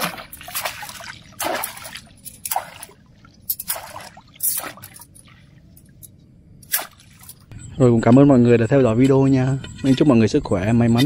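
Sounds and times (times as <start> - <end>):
water splashing and sloshing: 0.0 - 7.5.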